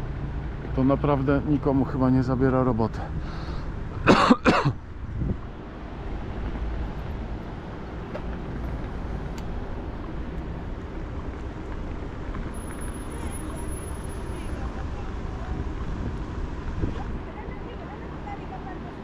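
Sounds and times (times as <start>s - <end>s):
bicycle road rumble: 0.0s - 19.0s
wind: 0.0s - 19.0s
person coughing: 4.0s - 4.8s.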